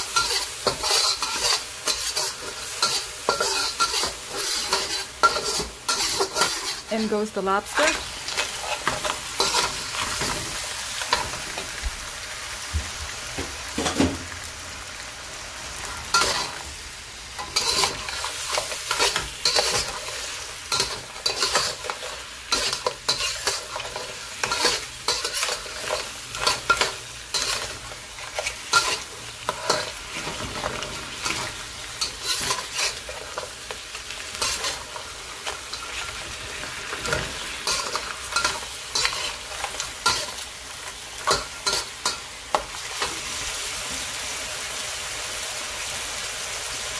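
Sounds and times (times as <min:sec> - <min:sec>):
metal spatula scraping a wok: 0:00.0 - 0:07.2, 0:07.8 - 0:10.5, 0:16.1 - 0:16.6, 0:17.4 - 0:40.4
lobster sizzling in a wok: 0:00.0 - 0:46.9.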